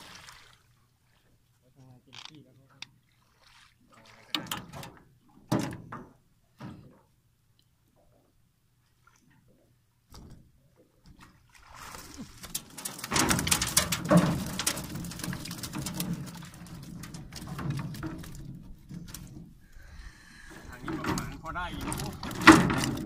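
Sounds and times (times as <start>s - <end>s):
fish flapping: 11.6s - 19.4s
wire trap rattling against boat: 12.4s - 20.0s, 20.7s - 23.0s.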